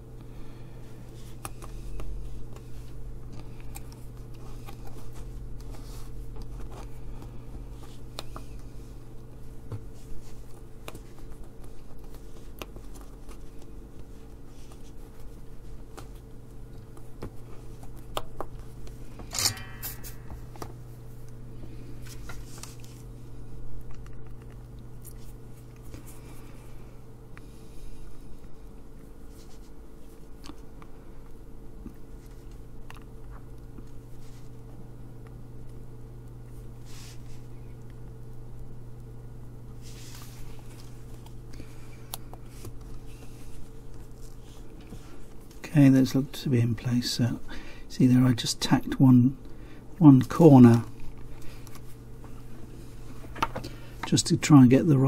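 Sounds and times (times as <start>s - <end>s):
low steady hum: 0.0s - 55.0s.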